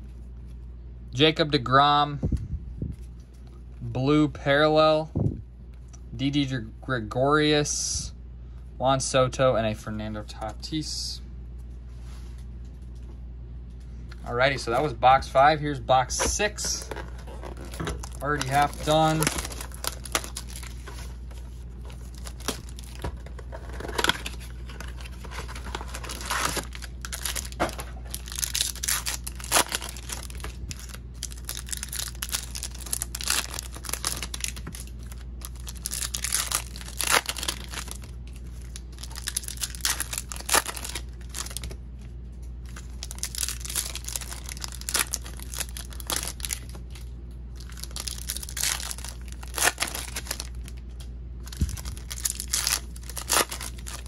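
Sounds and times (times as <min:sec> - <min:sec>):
steady low hum: 0:00.0 - 0:54.0
wrappers tearing and crinkling: 0:16.1 - 0:41.8, 0:42.6 - 0:54.0.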